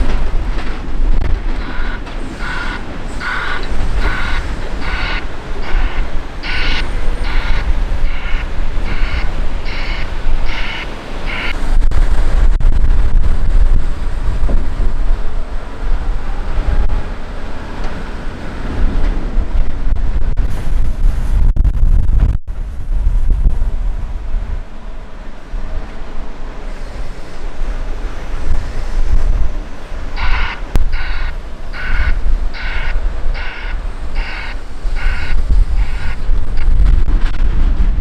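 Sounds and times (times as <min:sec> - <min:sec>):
diesel machinery rumbling: 0:00.0 - 0:38.0
reversing alarm beeping: 0:01.6 - 0:11.6, 0:30.2 - 0:36.2.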